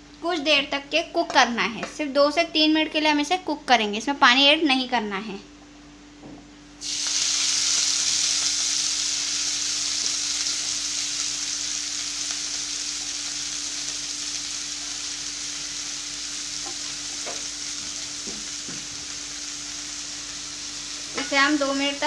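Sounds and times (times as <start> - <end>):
leaves sizzling in hot oil: 6.8 - 22.0.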